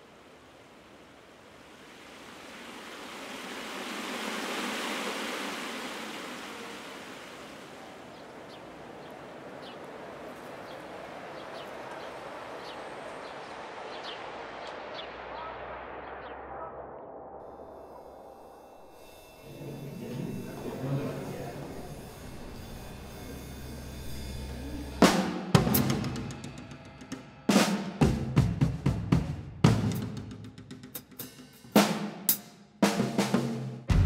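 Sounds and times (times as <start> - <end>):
steady rushing noise: 0.0 - 25.5.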